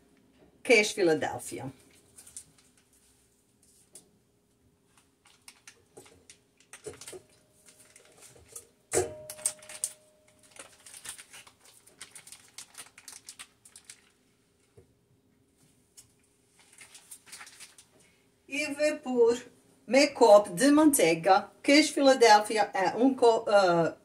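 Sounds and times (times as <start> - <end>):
foil wrapper crinkling: 1.8 - 3.1, 4.9 - 8.6, 9.3 - 14.3, 16.6 - 18.1.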